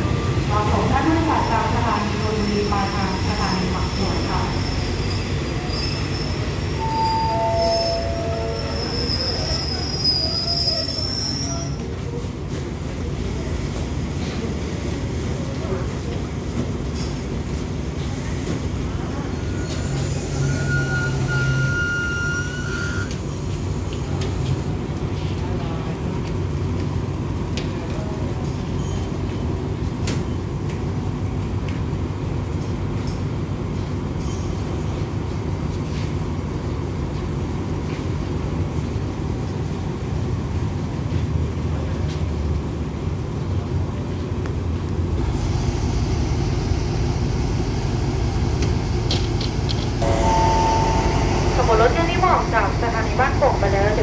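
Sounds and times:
high steady tone: 6.8 - 9.1, 50.0 - 54.0
diesel locomotives idling: 45.1 - 54.0.

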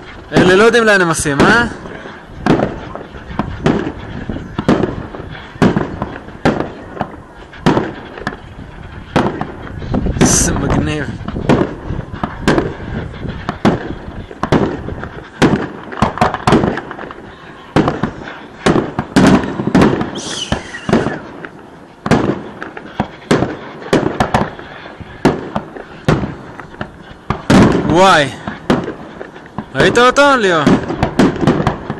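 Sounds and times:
firework crackle: 0.0 - 31.9
firework shells bursting: 0.0 - 31.9
falling hiss: 19.5 - 21.4.

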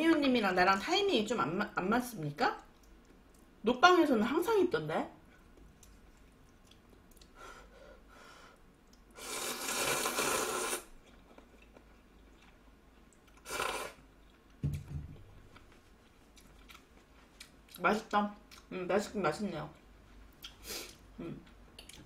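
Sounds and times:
person slurping noodles: 9.2 - 10.9, 13.4 - 14.0.

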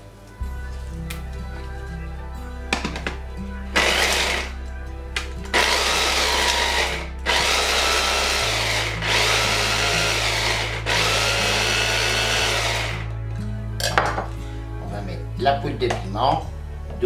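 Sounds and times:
mini chopper motor chopping: 3.8 - 4.5, 5.5 - 13.0.

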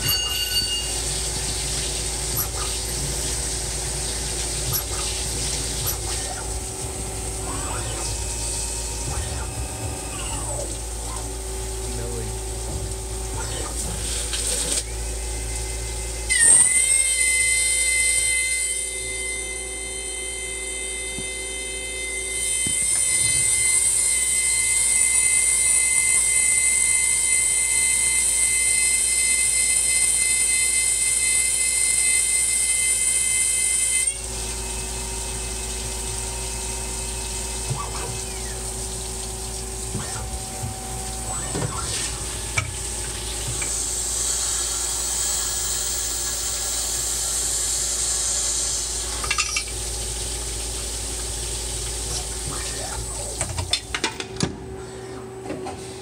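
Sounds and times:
machine hum: 0.0 - 56.0
coolant splashing: 0.9 - 15.4, 34.2 - 44.5
lathe spindle whine: 14.8 - 37.7, 38.4 - 49.7.

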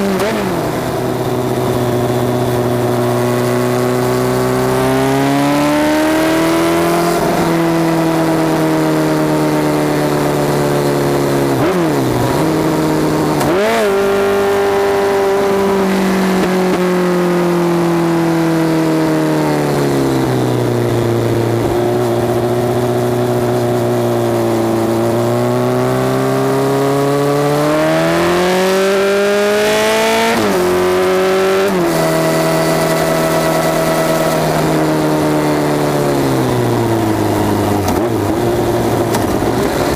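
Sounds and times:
motorcycle engine revving: 0.0 - 39.9
gear changes: 20.9 - 39.9.

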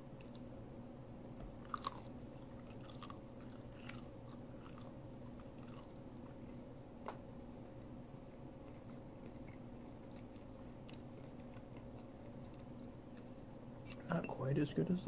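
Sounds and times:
crunching bite into bacon: 1.6 - 6.0
chewing crunches: 1.6 - 6.1, 8.6 - 14.0.

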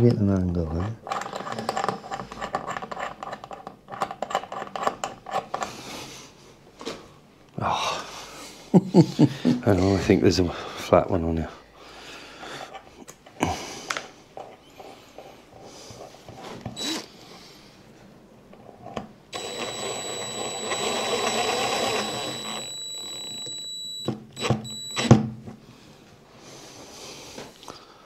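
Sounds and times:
power drill motor whine: 16.8 - 17.1, 19.3 - 25.2.

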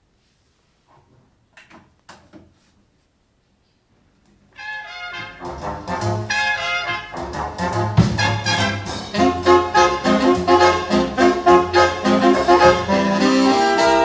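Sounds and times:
brass music over loudspeakers: 4.6 - 14.0.

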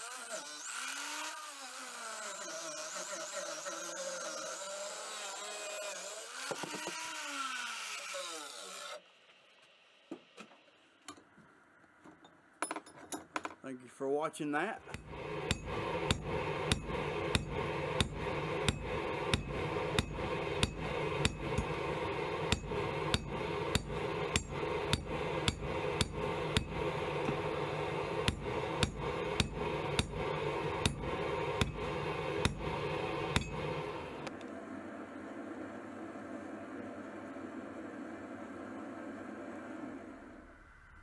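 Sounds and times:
hammer blows on hot steel: 14.8 - 34.2.

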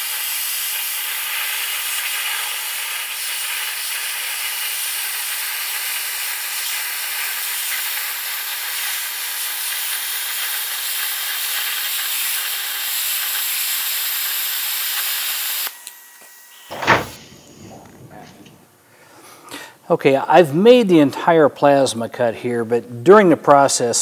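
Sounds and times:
plasma cutter hissing: 0.0 - 15.8.

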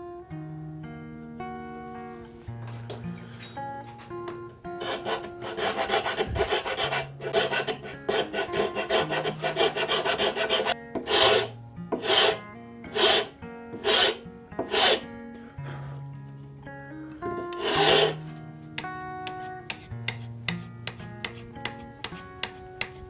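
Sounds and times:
file rasping on wood: 4.8 - 15.0, 17.4 - 18.2, 19.2 - 23.0.

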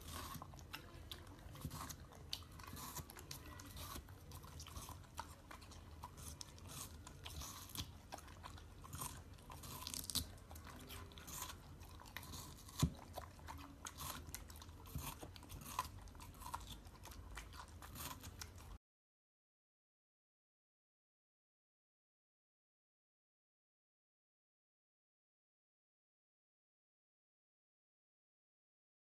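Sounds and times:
dog chewing watermelon: 0.0 - 18.8.

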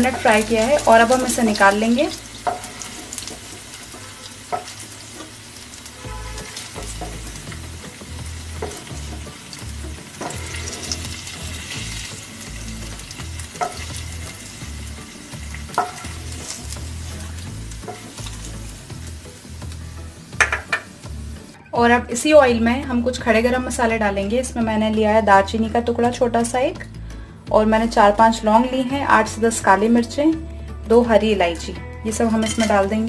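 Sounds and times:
paneer sizzling in hot oil: 0.0 - 21.6, 31.4 - 33.0
wooden spoon knocking on pan: 2.4 - 2.7, 4.5 - 5.3, 8.5 - 9.3, 13.5 - 13.9, 15.7 - 16.2, 20.4 - 21.0.

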